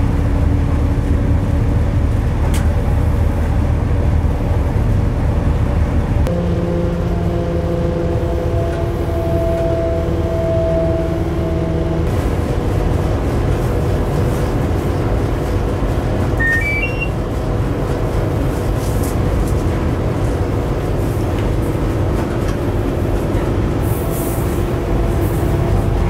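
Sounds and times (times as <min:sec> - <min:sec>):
moving train rumble: 0:00.0 - 0:26.0
humming tones: 0:06.3 - 0:12.0
rising short beeps: 0:16.4 - 0:17.2.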